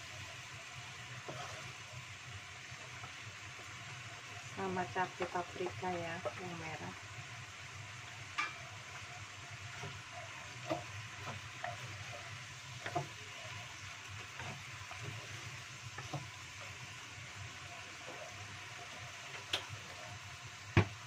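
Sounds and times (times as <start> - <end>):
food sizzling in a wok: 0.0 - 21.0
spatula scraping and tapping pan: 1.2 - 1.8, 8.3 - 17.0.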